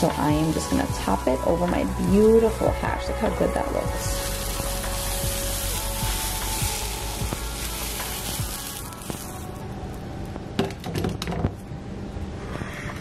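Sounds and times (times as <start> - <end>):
frying pan sizzling: 0.0 - 9.6.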